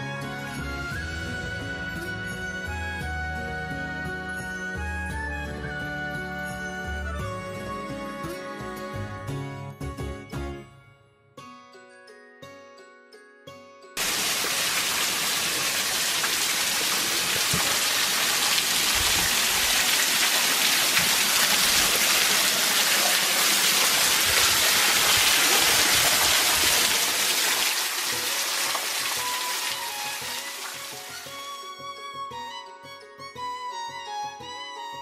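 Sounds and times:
waterfall pouring onto rocks: 14.0s - 31.3s.

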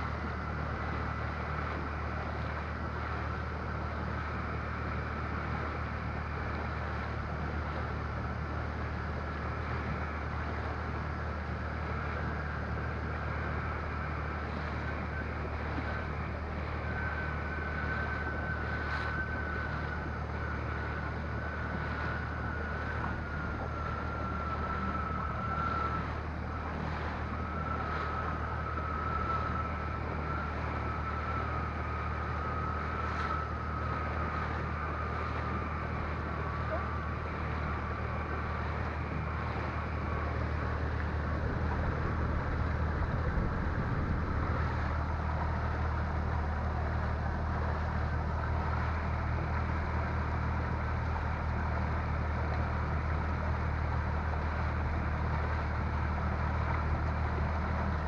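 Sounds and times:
high whine: 0.0s - 58.0s
outboard motor droning: 0.0s - 58.0s
water rushing along hull: 0.0s - 58.0s.

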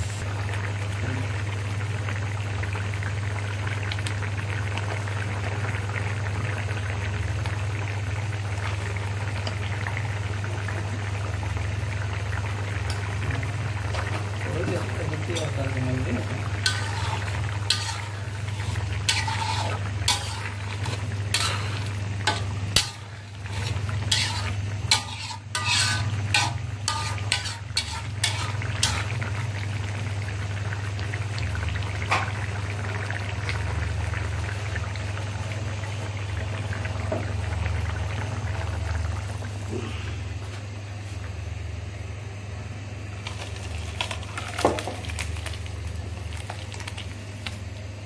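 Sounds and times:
curry bubbling and sizzling: 0.0s - 41.4s, 42.7s - 48.0s
metal spoon scraping a pan: 16.6s - 29.2s.

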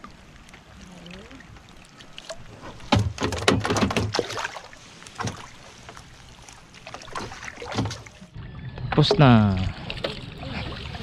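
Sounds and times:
net splashing out of water: 2.9s - 5.5s.

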